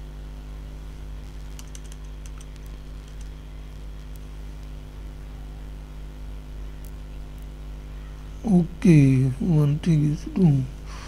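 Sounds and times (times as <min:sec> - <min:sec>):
low electrical hum: 0:00.0 - 0:11.0
keyboard keys clicking: 0:01.5 - 0:03.3.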